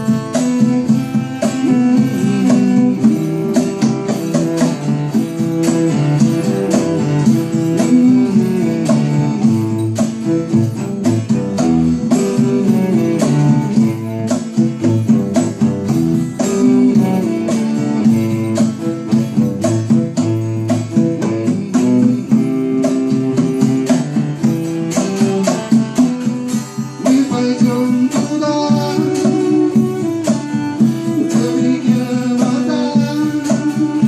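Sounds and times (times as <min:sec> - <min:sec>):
bowed cello: 0:00.0 - 0:27.2, 0:27.8 - 0:33.1
acoustic guitar: 0:00.0 - 0:34.0.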